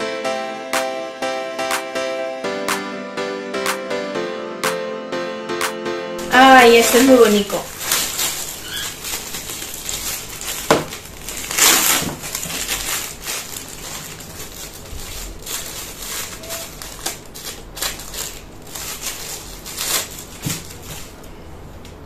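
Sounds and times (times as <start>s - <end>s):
plastic bag crinkling: 6.5s - 21.3s.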